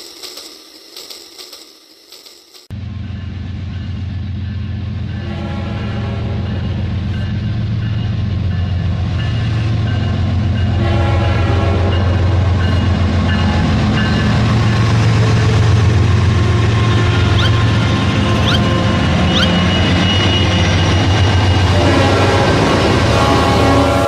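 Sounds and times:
locomotive rumble: 2.7 - 24.0
train horn tone: 4.4 - 7.4, 8.5 - 14.4, 16.5 - 24.0
short rising chirps: 18.4 - 20.6.

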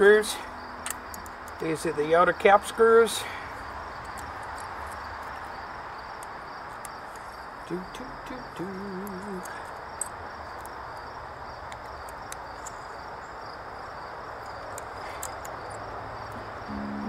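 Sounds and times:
crickets chirring: 0.0 - 17.0
small metal parts clicking: 3.5 - 5.5, 8.9 - 11.1, 14.4 - 15.9
background hiss: 12.6 - 17.0
wavering tone: 16.7 - 17.0.

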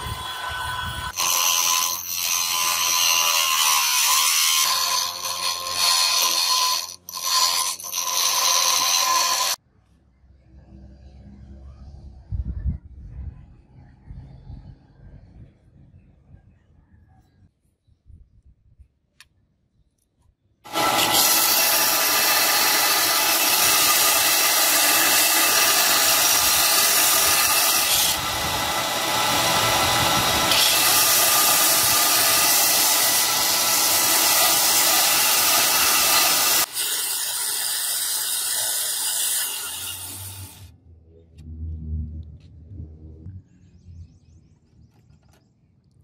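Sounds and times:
belt sander grinding metal: 0.0 - 9.6, 20.7 - 40.6.

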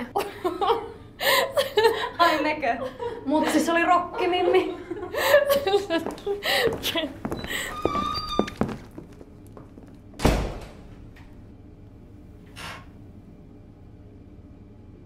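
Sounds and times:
door banging shut: 10.2 - 11.0.

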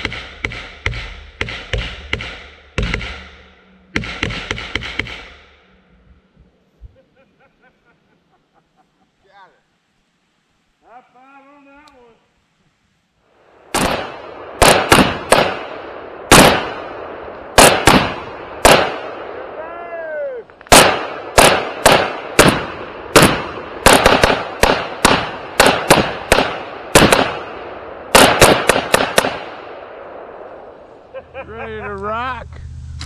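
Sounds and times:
semi-automatic gunshots: 13.6 - 19.6, 20.6 - 30.8
brief falling whine: 32.4 - 33.0.

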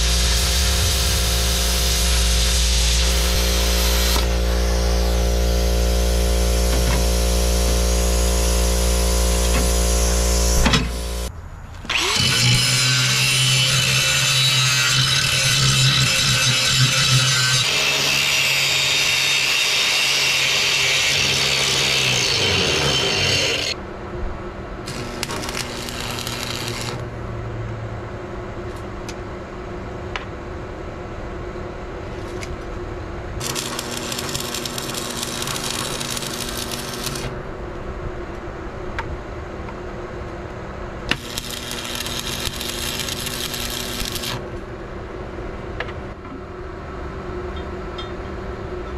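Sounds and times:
angle grinder grinding steel: 0.0 - 11.3, 11.9 - 23.8, 24.9 - 27.0, 33.4 - 37.3, 41.1 - 44.4
welder hum: 0.0 - 11.3, 11.9 - 23.8, 24.8 - 27.2, 33.4 - 37.6, 41.0 - 44.8
welding arc crackling: 0.0 - 11.3, 11.9 - 23.8, 24.9 - 27.1, 33.4 - 37.4, 41.1 - 44.4.

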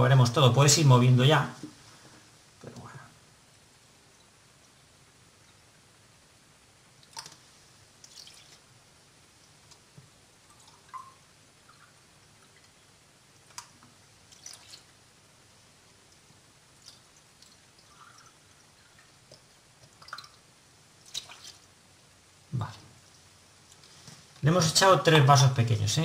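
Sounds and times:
wet squishes and drips: 7.0 - 7.4, 8.0 - 8.7, 13.4 - 15.0, 16.8 - 20.4, 21.0 - 21.7
milk pouring: 7.0 - 8.7, 9.5 - 15.0, 16.1 - 21.7.

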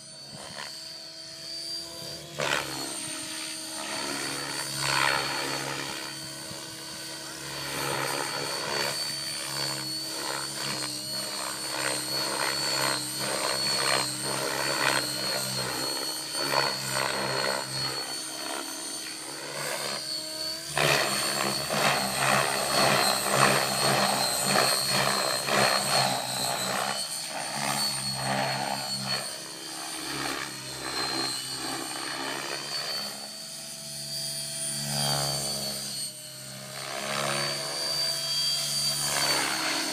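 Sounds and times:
high motor whine: 0.0 - 39.9
rotor blades chopping: 1.6 - 33.1.

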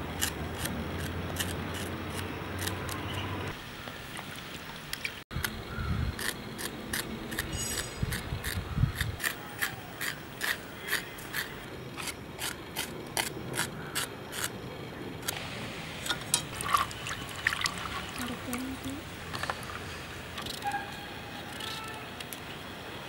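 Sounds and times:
knife scraping seeds: 6.2 - 14.6.

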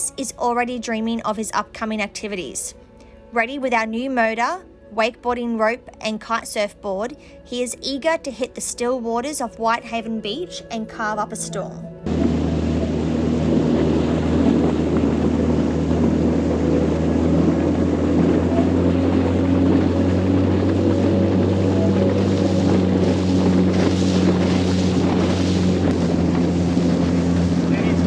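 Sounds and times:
outboard motor humming: 12.0 - 28.0
water rushing past hull: 12.0 - 28.0
wind on microphone: 12.1 - 28.0.

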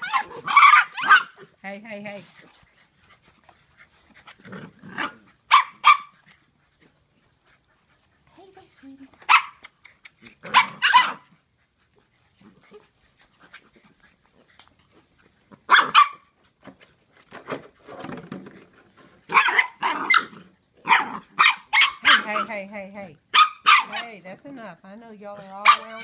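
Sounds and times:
puppies barking: 0.0 - 1.5, 5.0 - 6.2, 9.3 - 9.6, 10.4 - 11.4, 15.6 - 16.3, 19.3 - 22.6, 23.3 - 24.2, 25.4 - 26.0.

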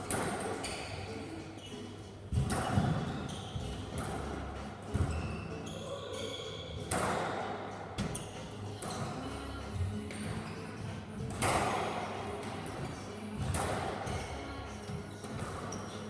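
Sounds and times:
squash ball hitting rackets and walls: 0.0 - 1.6, 2.2 - 16.0
shoes squeaking on wooden floor: 0.4 - 7.0, 14.8 - 16.0.

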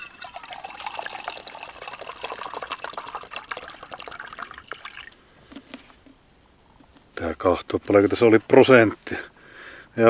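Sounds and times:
wine pouring into a mug: 0.0 - 5.2.

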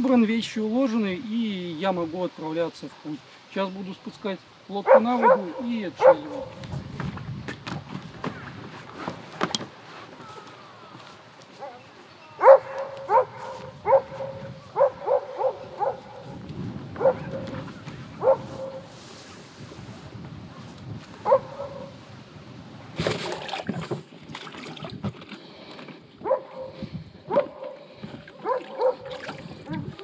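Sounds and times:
dog barking: 4.8 - 6.6, 12.4 - 16.4, 17.0 - 18.9, 21.2 - 21.9, 26.2 - 27.8, 28.4 - 29.2.

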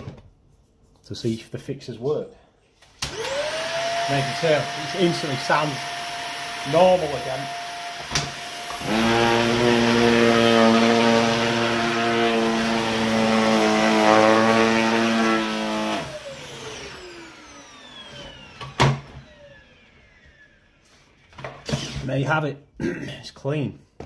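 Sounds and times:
vacuum cleaner running: 2.8 - 21.8
vacuum motor spinning down: 3.0 - 20.8.

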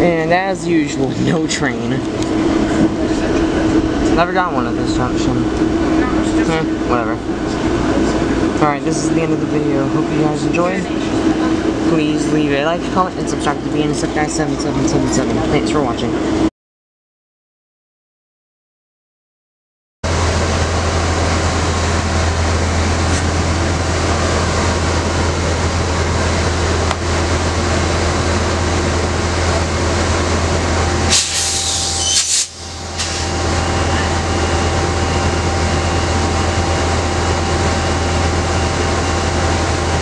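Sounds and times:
diesel locomotive idling: 0.0 - 16.5, 20.1 - 40.0
air hiss burst: 31.1 - 33.3.

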